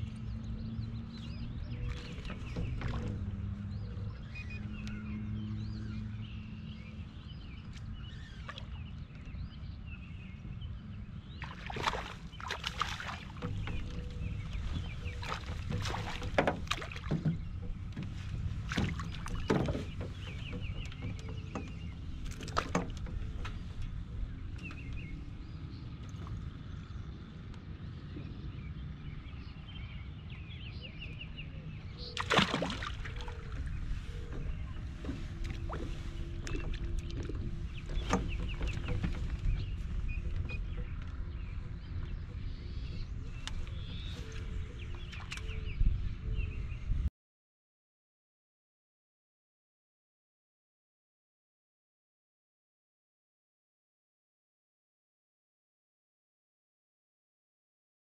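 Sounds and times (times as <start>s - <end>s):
low steady hum: 0.0s - 47.0s
birds chirping: 0.0s - 47.1s
wind rumble: 0.0s - 47.1s
fish splashing in water: 11.4s - 17.4s, 32.0s - 34.4s
loud splash in water: 32.2s - 33.3s.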